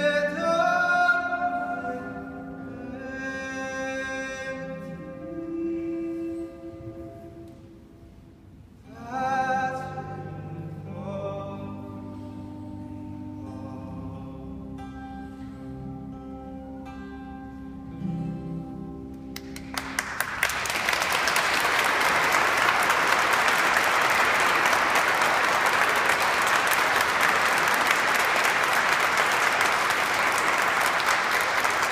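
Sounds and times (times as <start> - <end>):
acoustic guitar notes: 0.0 - 19.9
audience applause: 19.4 - 31.9.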